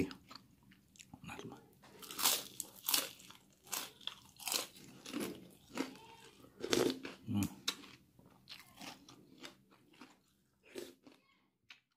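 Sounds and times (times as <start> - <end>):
crunchy crackers being chewed: 1.9 - 11.9.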